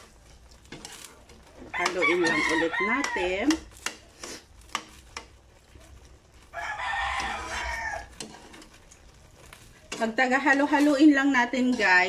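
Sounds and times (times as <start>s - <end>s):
rooster crowing: 1.7s - 3.5s, 6.5s - 8.2s.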